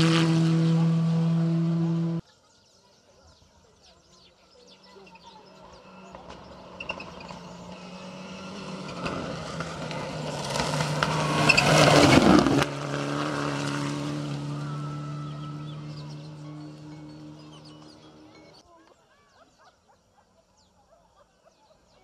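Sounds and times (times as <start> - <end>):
rally car engine at speed: 0.0 - 2.2, 5.2 - 18.6
tyres on dirt: 4.3 - 19.5.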